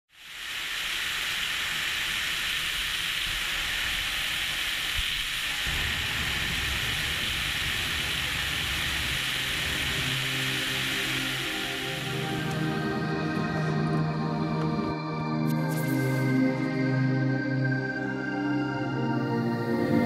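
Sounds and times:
steady rushing hiss: 0.1 - 20.0
low rumble: 5.6 - 10.7
soft music notes: 9.8 - 20.0.

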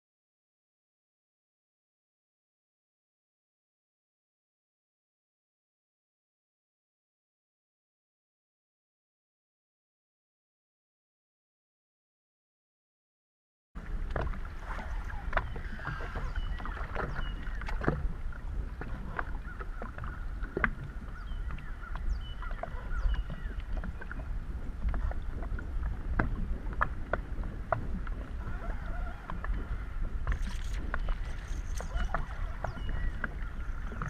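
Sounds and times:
water slapping against boat hull: 13.8 - 34.0
wind buffeting microphone: 13.8 - 34.0.

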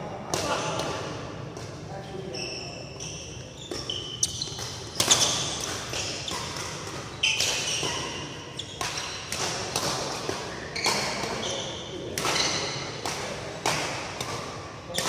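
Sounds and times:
shoes squeaking on court: 2.2 - 13.1
racket hitting shuttlecock: 3.7 - 15.0.

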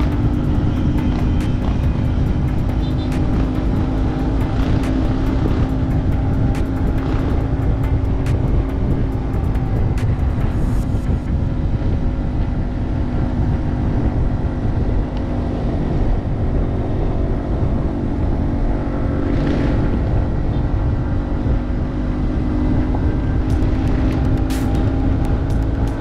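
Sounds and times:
sharp ticks: 0.0 - 11.2, 23.4 - 26.0
heavy low rumble: 0.0 - 26.0
motorcycle engine running: 0.0 - 26.0.

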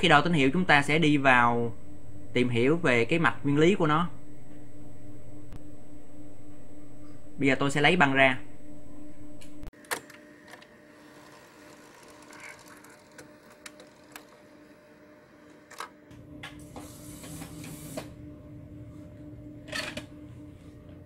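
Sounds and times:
tape transport clicks: 9.8 - 14.7
motor whirring: 9.8 - 16.1.

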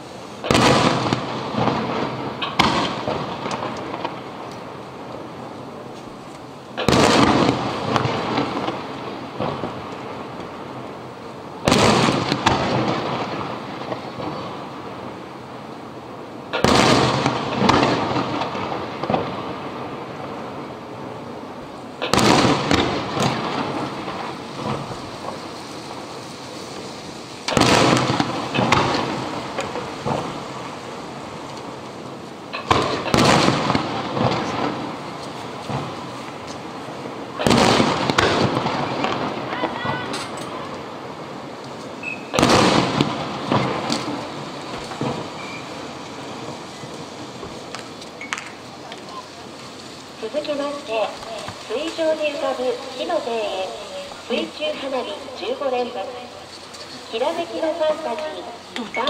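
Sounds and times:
firework booms echoing: 0.0 - 49.5
faint firework pops: 0.4 - 5.2, 16.5 - 19.4, 22.0 - 23.9, 26.7 - 30.8, 32.5 - 36.7, 37.4 - 40.8, 41.6 - 49.7.

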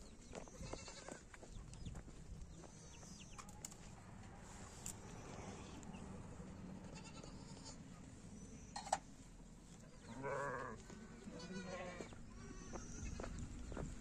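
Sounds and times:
livestock bleating: 0.6 - 1.2, 6.8 - 7.8, 10.0 - 13.4.

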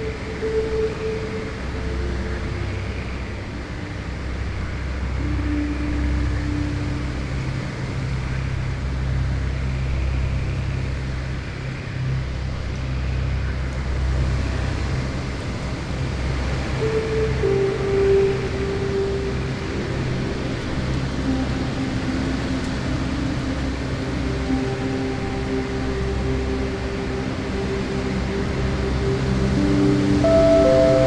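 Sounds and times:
steady rain hiss: 0.0 - 31.0
faint low held tones: 24.8 - 31.0.

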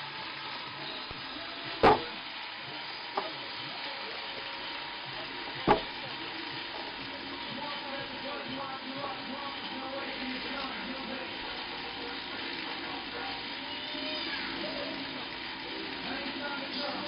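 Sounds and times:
sharp knocks: 1.8 - 2.1, 5.7 - 5.9.

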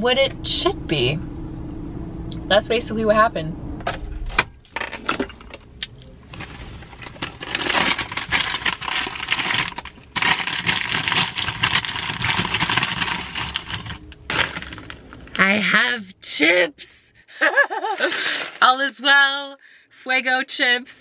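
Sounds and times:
plastic bags rustling: 6.2 - 15.4, 17.8 - 18.7.

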